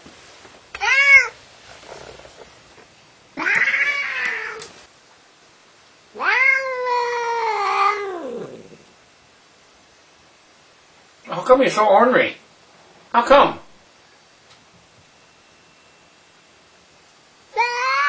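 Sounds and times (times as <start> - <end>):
cat meowing and yowling: 0.8 - 1.4, 3.4 - 4.7, 6.2 - 8.8, 17.5 - 18.0.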